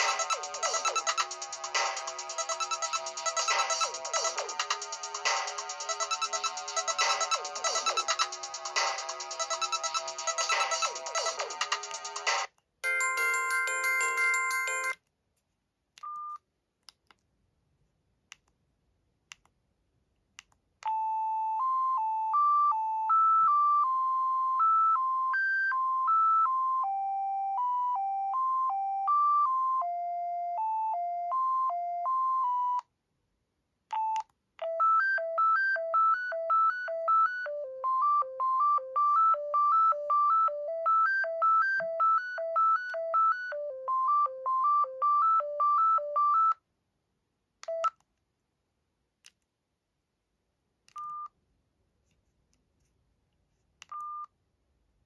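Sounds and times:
beeping electronic ringtone melody: 0:00.0 - 0:11.6, 0:12.8 - 0:15.0, 0:21.0 - 0:30.0, 0:34.6 - 0:46.6
keypad beep: 0:02.4 - 0:03.9.

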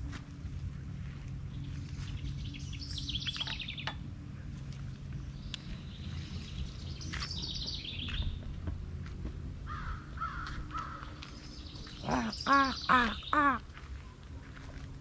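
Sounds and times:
low steady rumble: 0:00.0 - 0:15.0
lower bird calls: 0:09.7 - 0:14.0
bird trill of high chirps: 0:11.4 - 0:13.4.

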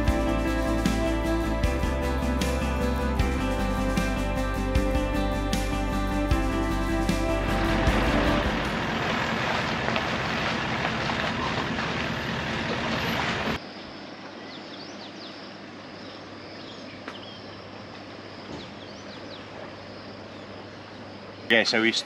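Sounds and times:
vehicle engine and tyre noise: 0:07.4 - 0:13.6.

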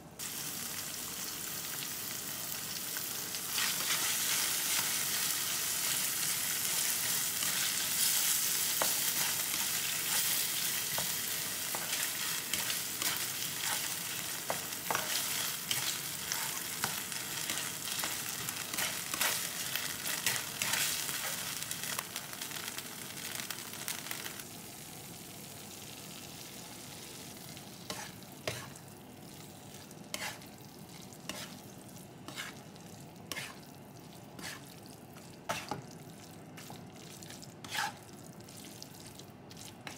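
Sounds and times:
sauce sizzling in a wok: 0:00.0 - 0:39.9
spatula scraping and clicking on pan: 0:08.7 - 0:21.4, 0:27.9 - 0:28.8, 0:30.1 - 0:30.5, 0:31.3 - 0:31.6, 0:32.3 - 0:32.6, 0:33.3 - 0:33.6, 0:34.4 - 0:34.7, 0:35.5 - 0:35.8, 0:37.6 - 0:38.0.

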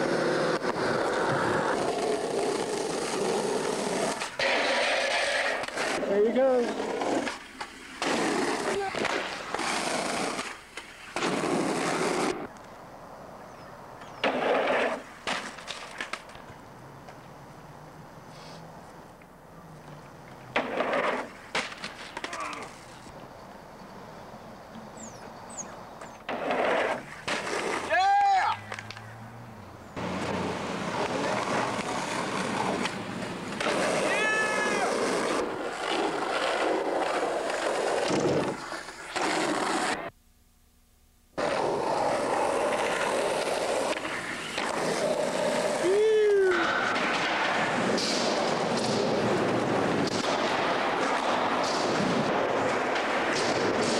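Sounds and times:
skateboard wheels rolling on asphalt: 0:00.0 - 0:40.2, 0:41.3 - 0:53.9
skateboard clacks: 0:14.2 - 0:17.2, 0:19.9 - 0:22.8, 0:30.0 - 0:40.1, 0:41.4 - 0:53.9.

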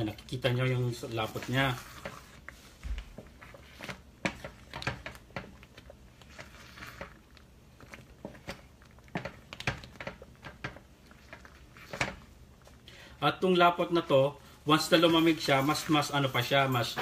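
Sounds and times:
wooden spatula scraping a pan: 0:01.0 - 0:04.6.

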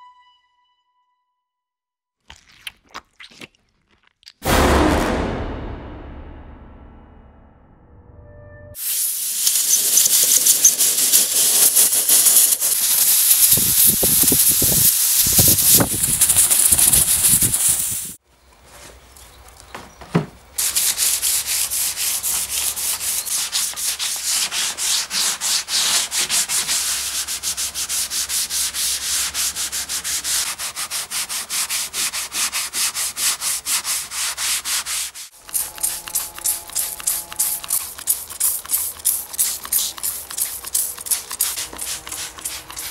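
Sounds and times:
compressed-air blow gun hissing: 0:08.8 - 0:18.2
spray bottle squirting: 0:08.8 - 0:18.2, 0:35.4 - 0:42.9
hand sanding wood: 0:09.3 - 0:18.2, 0:20.6 - 0:42.9.

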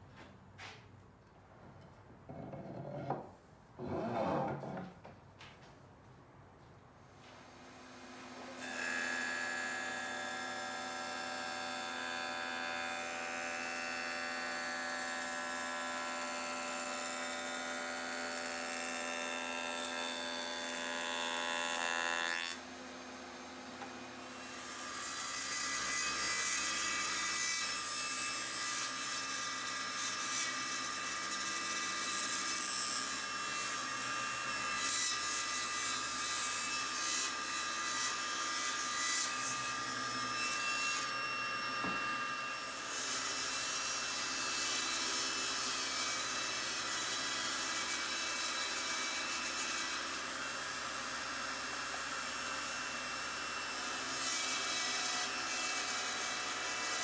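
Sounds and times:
table saw cutting wood: 0:02.3 - 0:04.9, 0:07.5 - 0:57.0.

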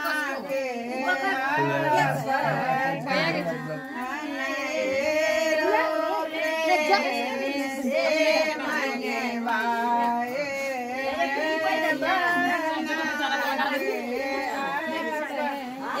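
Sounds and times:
women singing together: 0:00.0 - 0:16.0.

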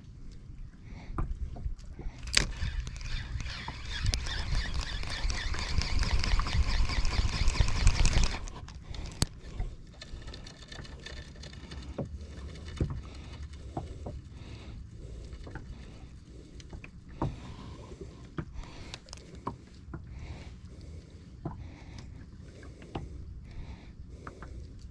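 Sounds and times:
water lapping: 0:00.0 - 0:24.9
fishing reel whirring: 0:02.2 - 0:11.8.

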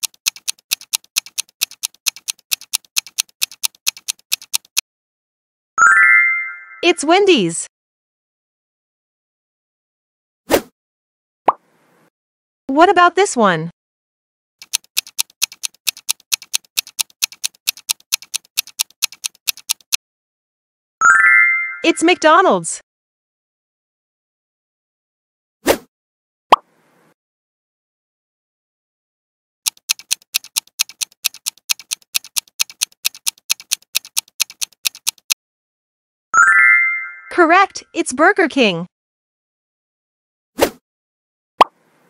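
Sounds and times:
fast clock-like ticking: 0:00.0 - 0:04.8, 0:14.6 - 0:20.0, 0:29.6 - 0:35.4.

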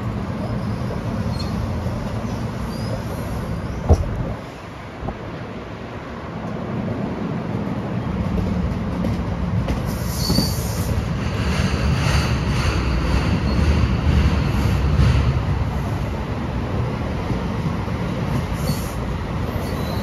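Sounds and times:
train wheels rumbling on rails: 0:00.0 - 0:20.0
high wheel squeal: 0:10.0 - 0:10.9, 0:18.6 - 0:20.0.

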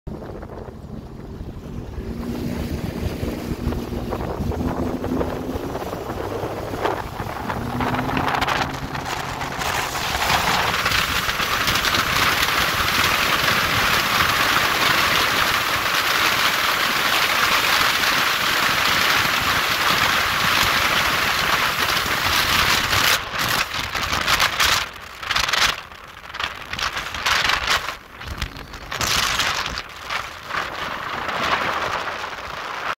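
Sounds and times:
jet ski engine accelerating: 0:00.1 - 0:32.9
wind rushing on microphone: 0:00.1 - 0:32.9.

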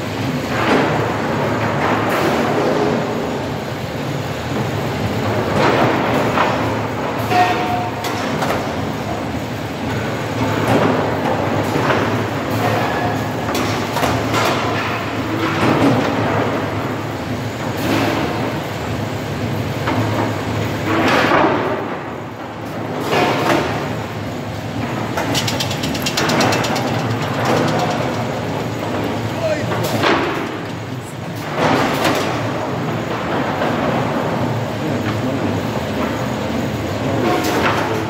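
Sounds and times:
machine drone: 0:24.8 - 0:31.9
wooden boards knocking and clattering: 0:25.2 - 0:29.2.

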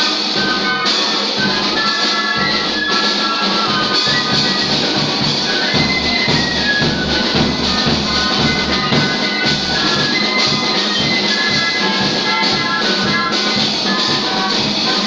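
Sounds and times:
music with drums: 0:00.0 - 0:15.0.

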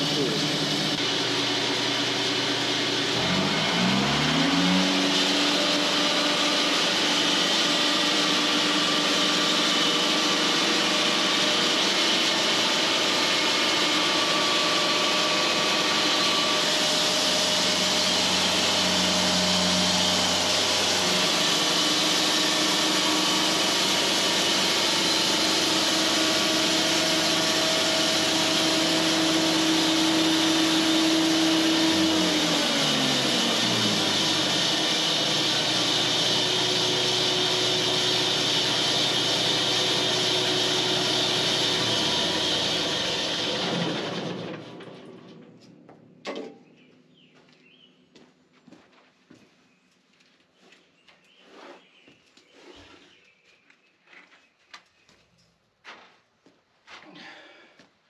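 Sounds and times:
bandsaw cutting wood: 0:00.0 - 0:45.1.

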